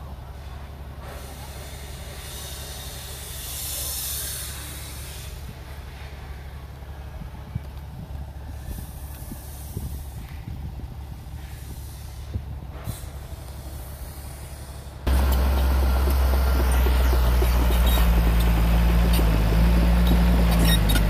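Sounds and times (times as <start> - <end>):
short bursts of hiss: 1.0 - 5.5, 11.2 - 15.6
diesel machinery engine humming: 12.6 - 21.0.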